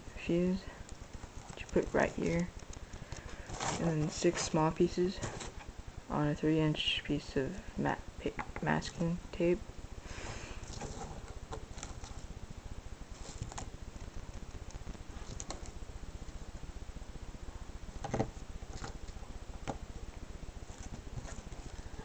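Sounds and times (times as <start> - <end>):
soft clicks and rustles: 0.6 - 5.7, 13.0 - 16.4.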